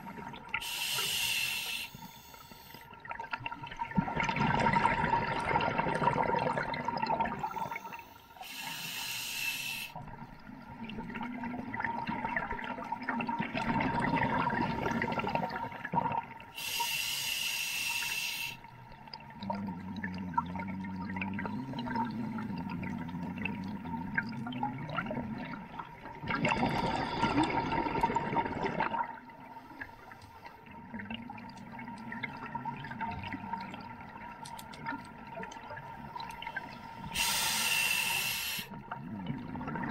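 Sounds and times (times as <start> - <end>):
regulator hissing inhalation: 0.6 - 2.9, 7.5 - 10.0, 16.6 - 18.6, 37.0 - 38.7
gurgling exhaled bubbles: 3.0 - 8.0, 10.1 - 16.5, 19.1 - 29.5, 30.6 - 39.9.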